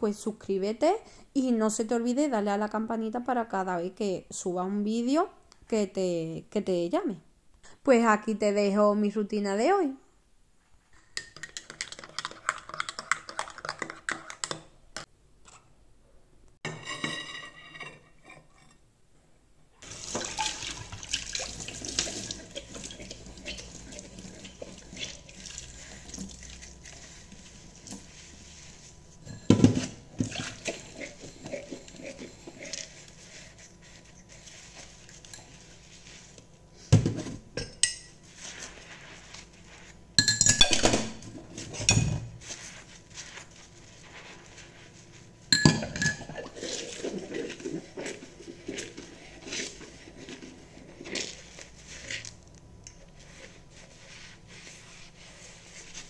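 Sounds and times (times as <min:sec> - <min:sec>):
water running: 0:19.8 - 0:33.5.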